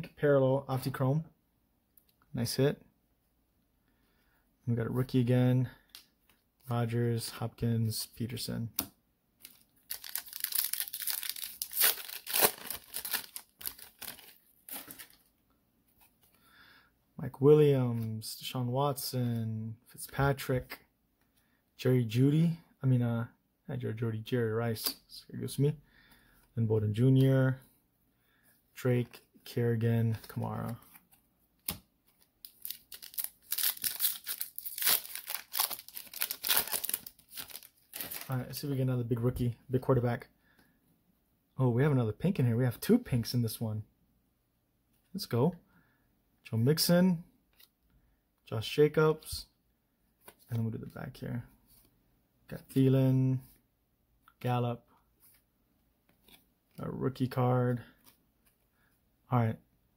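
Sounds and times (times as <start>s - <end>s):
foil wrapper tearing and crinkling: 9.4s - 15.2s, 32.4s - 38.3s.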